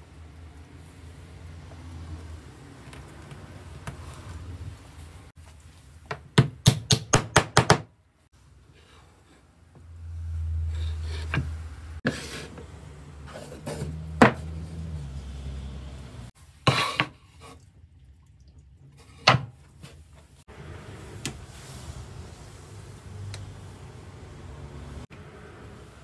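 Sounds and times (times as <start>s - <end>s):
knocks and clatters on workbench: 13.6s - 14.6s, 19.2s - 19.6s.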